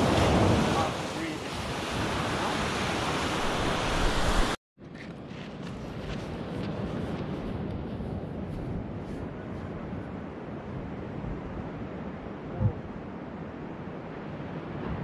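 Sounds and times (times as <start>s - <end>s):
ocean surf breaking: 0.0s - 4.6s
wind buffeting microphone: 5.3s - 15.0s.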